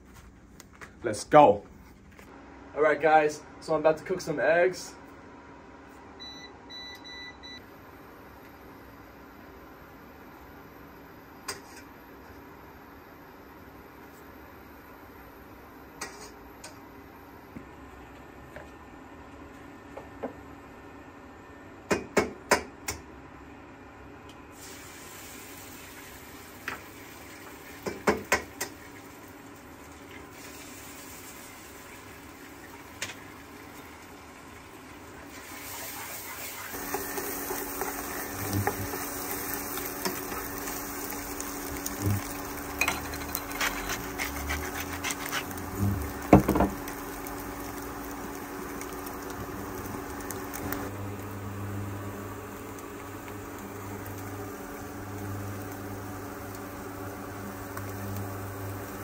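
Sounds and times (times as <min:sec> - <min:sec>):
eggs sizzling in a frying pan: 0:24.6 - 0:59.0
spatula scraping a pan: 0:42.8 - 0:45.8.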